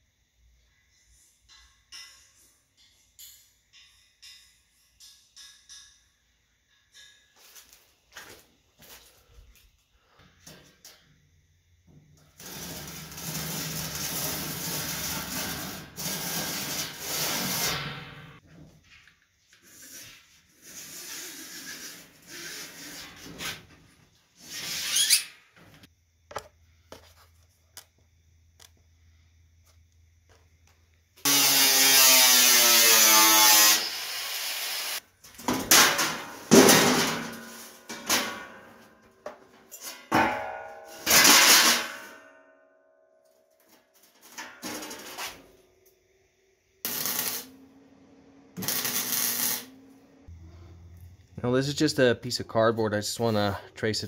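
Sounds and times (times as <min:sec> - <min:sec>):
angle grinder on steel plate: 0:31.3 - 0:35.0, 0:46.9 - 0:47.5, 0:48.6 - 0:49.7.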